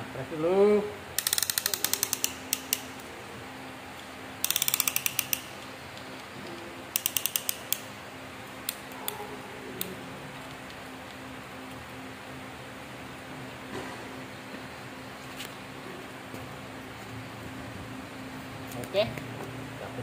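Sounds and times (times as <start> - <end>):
ratchet clicks: 1.2 - 3.1, 4.4 - 6.2, 6.9 - 7.9.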